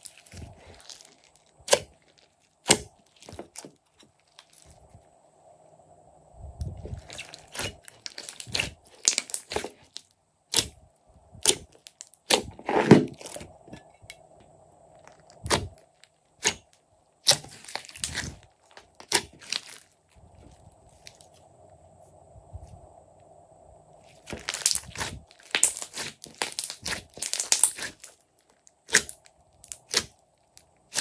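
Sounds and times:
slime crackling and popping: 0:00.0 - 0:04.8, 0:06.9 - 0:10.8, 0:14.9 - 0:20.0, 0:24.2 - 0:31.0.

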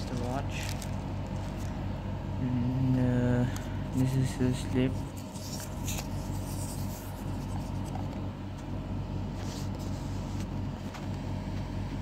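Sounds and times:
paper rustling: 0:00.0 - 0:01.8, 0:04.9 - 0:08.3, 0:09.3 - 0:11.1
low hum: 0:00.0 - 0:12.0.

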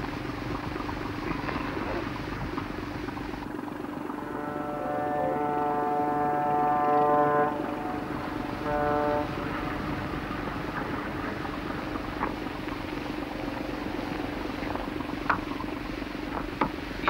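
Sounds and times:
mechanical rumble: 0:00.0 - 0:17.0
pitched horn blasts: 0:04.0 - 0:11.2.

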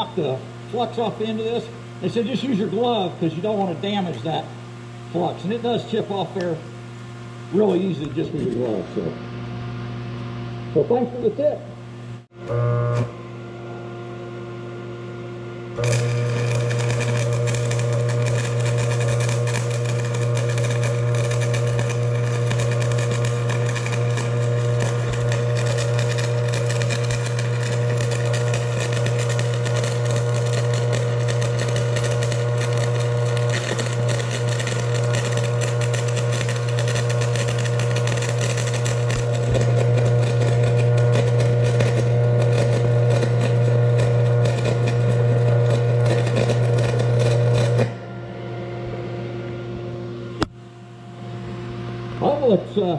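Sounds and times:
welding arc crackling and sizzling: 0:00.0 - 0:04.5, 0:12.2 - 0:13.2, 0:15.7 - 0:48.0
arc welder humming: 0:00.0 - 0:52.9.

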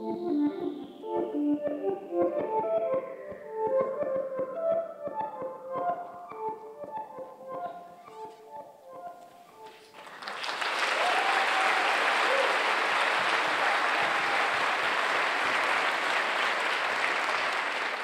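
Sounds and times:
audience applauding: 0:10.0 - 0:18.0.

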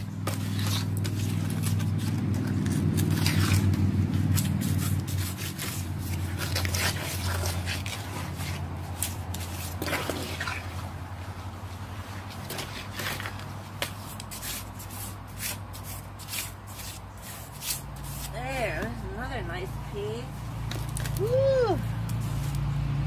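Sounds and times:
fabric squishing in wet slurry: 0:00.0 - 0:13.7
scrapes against tub: 0:00.3 - 0:10.8.

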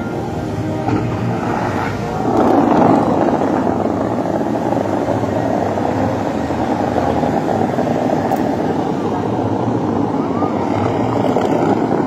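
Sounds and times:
fountain water jets rushing: 0:00.0 - 0:12.0.

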